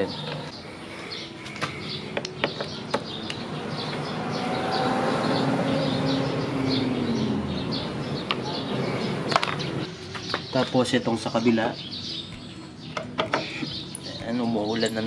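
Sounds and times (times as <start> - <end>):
small birds chirping: 0.0 - 15.0
vehicle passing: 1.8 - 10.5.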